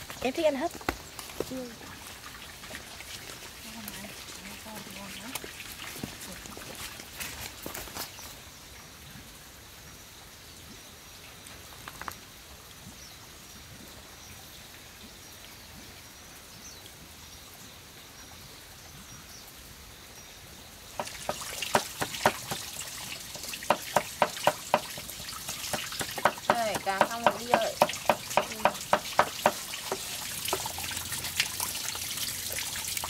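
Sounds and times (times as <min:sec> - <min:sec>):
knife chopping on wooden board: 0:21.0 - 0:22.6, 0:25.7 - 0:29.6.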